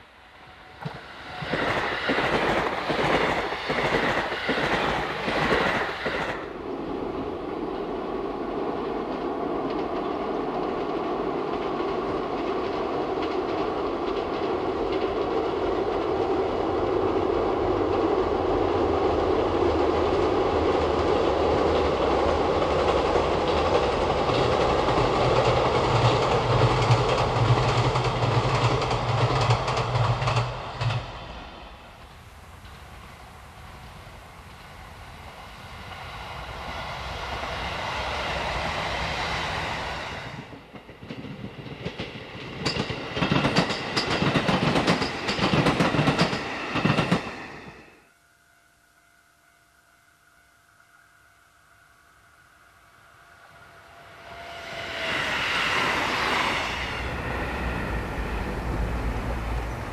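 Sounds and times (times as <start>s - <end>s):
train rumbling over steel bridge: 0.0s - 48.0s, 51.0s - 59.9s
train wheels clacking over rail joints: 21.6s - 31.1s, 40.5s - 47.4s.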